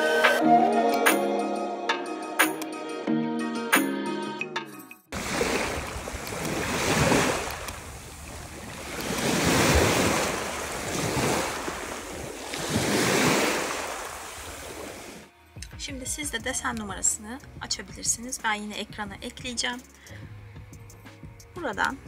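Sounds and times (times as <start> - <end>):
sea waves washing in: 5.1 - 15.3
wind on the microphone: 5.2 - 15.2.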